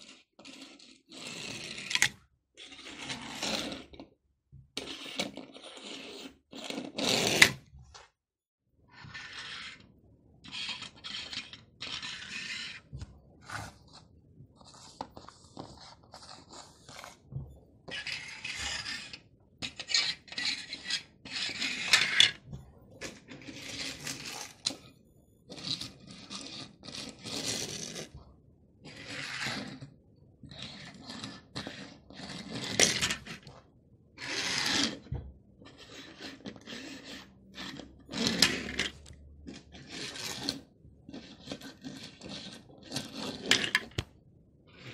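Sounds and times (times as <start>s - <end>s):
toy car wheels rolling on laminate: 0.0s - 4.0s, 10.4s - 13.7s, 17.9s - 24.8s, 30.5s - 33.6s, 34.2s - 44.1s.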